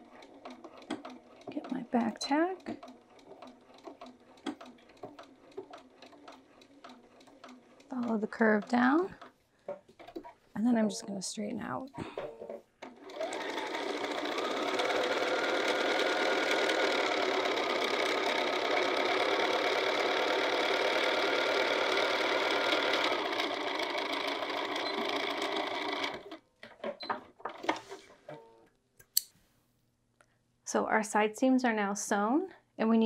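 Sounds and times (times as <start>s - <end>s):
sewing machine stitching: 0.0s - 9.3s, 12.0s - 26.4s.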